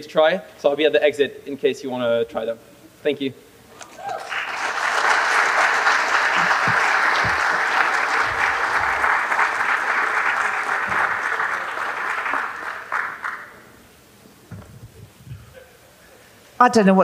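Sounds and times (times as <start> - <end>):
audience applauding: 3.8 - 13.8.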